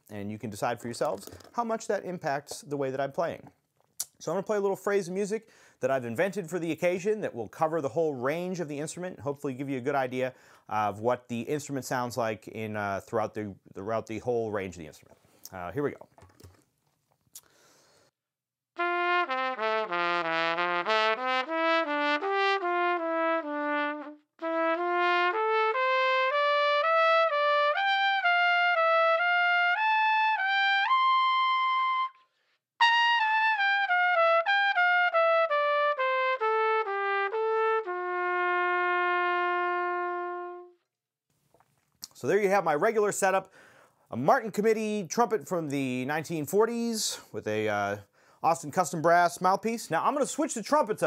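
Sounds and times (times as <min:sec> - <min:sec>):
trumpet playing: 0:18.8 - 0:40.9.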